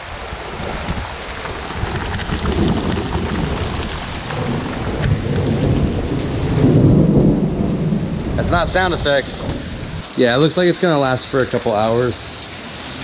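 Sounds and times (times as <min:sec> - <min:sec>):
heavy rain: 0:00.0 - 0:13.0
low rumble of thunder: 0:00.2 - 0:10.0.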